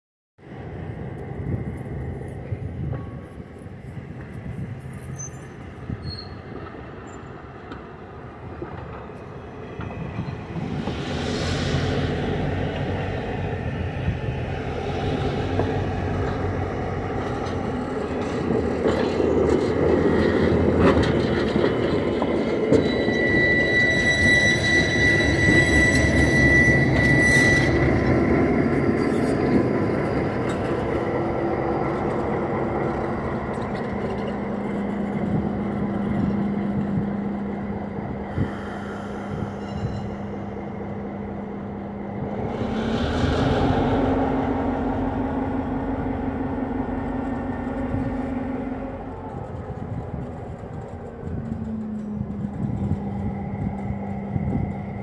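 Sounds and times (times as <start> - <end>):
diesel locomotive engine running: 0.4 - 55.0
steel wheels rumbling over rails: 0.4 - 55.0
high wheel squeal: 5.0 - 7.3, 21.1 - 31.0, 32.0 - 45.0.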